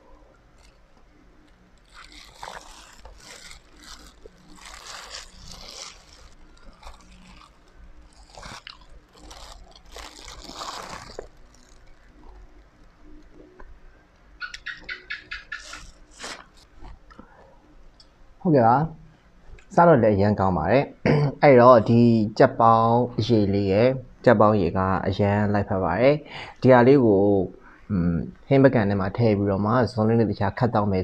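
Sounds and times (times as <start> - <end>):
person chewing and crunching food: 1.5 - 13.6.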